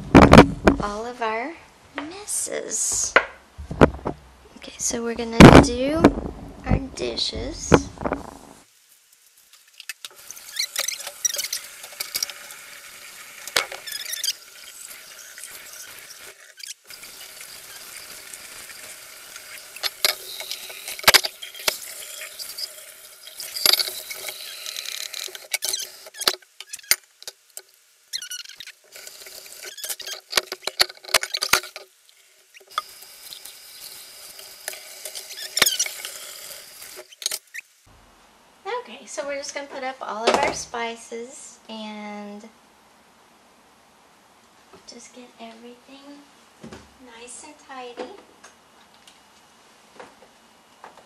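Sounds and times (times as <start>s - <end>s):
faucet water pouring into sink: 9.6s - 27.3s, 28.2s - 37.4s.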